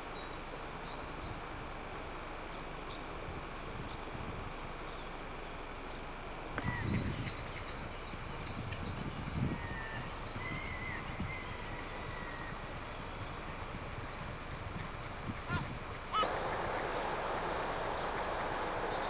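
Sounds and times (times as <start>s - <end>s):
steady wind-like hiss: 0.0s - 19.0s
birds chirping: 6.5s - 19.0s.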